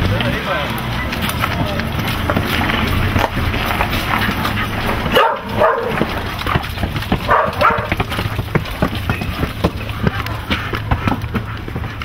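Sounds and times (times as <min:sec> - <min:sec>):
footsteps running up concrete stairs: 0:00.1 - 0:12.0
dog barking: 0:04.6 - 0:06.6, 0:07.2 - 0:08.0.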